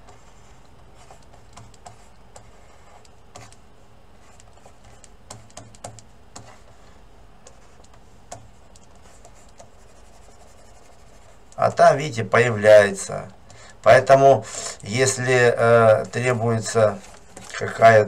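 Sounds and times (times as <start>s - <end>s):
stylus tapping graphics tablet: 0.0s - 6.8s, 7.4s - 11.7s
faint steady hum: 0.0s - 18.0s.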